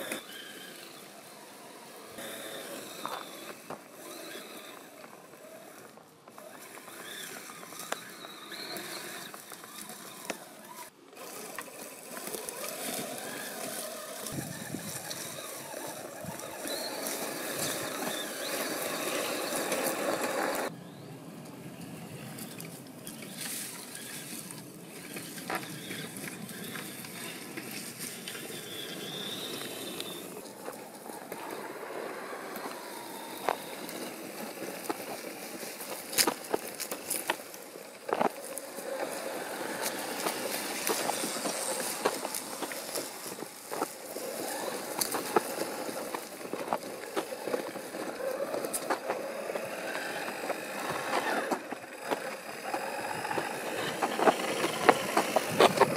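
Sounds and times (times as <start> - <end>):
electric motor running: 0.0 - 20.7, 23.2 - 55.9
tyres crunching over twigs: 0.0 - 20.7, 22.3 - 55.9
sharp clicks and cracks: 33.4 - 39.2, 39.8 - 55.9.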